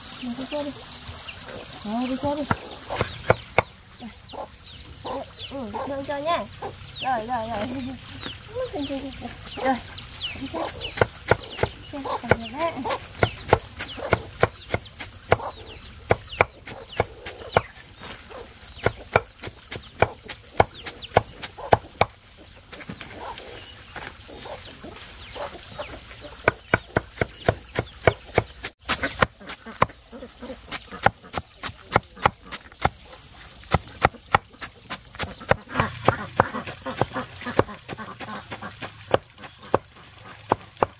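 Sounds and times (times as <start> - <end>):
chickens calling: 0.2 - 40.9
cleaver chopping on wooden block: 2.4 - 3.7, 10.6 - 17.7, 18.8 - 22.2, 26.4 - 30.0, 31.0 - 33.0, 33.7 - 39.9.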